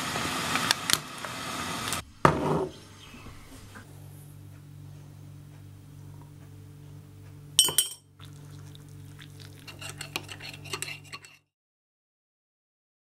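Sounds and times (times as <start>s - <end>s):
steady low hum: 2.0s - 11.4s
spoon clinking against ceramic mug: 7.6s - 8.1s, 9.6s - 11.4s.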